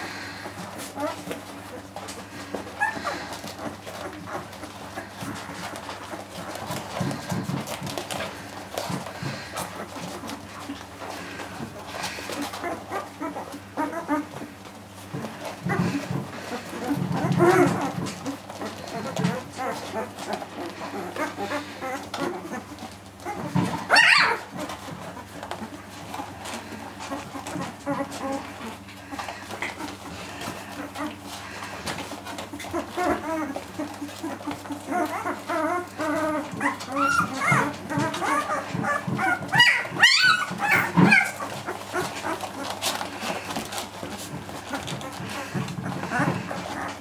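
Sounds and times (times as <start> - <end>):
puppies squeaking and whimpering: 0.0 - 47.0
puppy high wavering cry: 21.1 - 24.6, 32.6 - 42.7.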